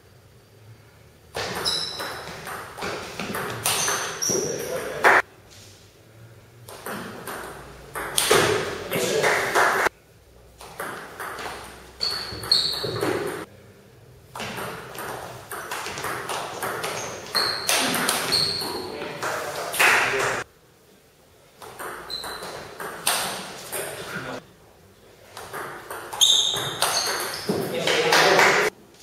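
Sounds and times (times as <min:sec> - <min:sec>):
ping pong ball bouncing on table: 0:01.4 - 0:04.4, 0:06.7 - 0:08.5, 0:10.8 - 0:13.5, 0:14.4 - 0:18.7, 0:25.5 - 0:27.7
ping pong ball clicking off paddles: 0:01.4 - 0:05.2, 0:06.7 - 0:08.7, 0:10.6 - 0:13.5, 0:14.3 - 0:20.4, 0:21.6 - 0:24.0, 0:25.4 - 0:28.7.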